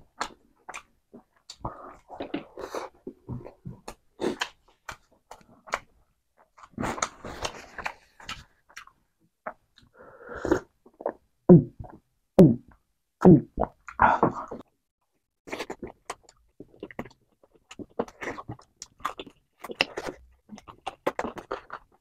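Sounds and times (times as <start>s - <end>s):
close chewing with wet clicks: 15.6s - 22.0s.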